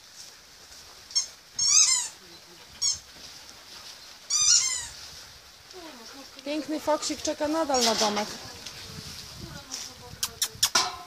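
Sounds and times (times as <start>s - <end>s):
dog whining: 4.3s - 5.0s.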